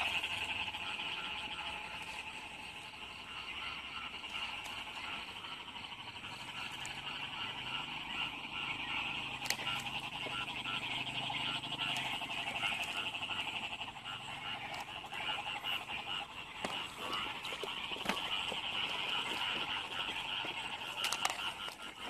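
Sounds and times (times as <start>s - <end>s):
frogs trilling chorus: 0.0s - 22.0s
repeating frog call: 0.0s - 22.0s
sharp clicks: 9.2s - 13.2s, 16.6s - 22.0s.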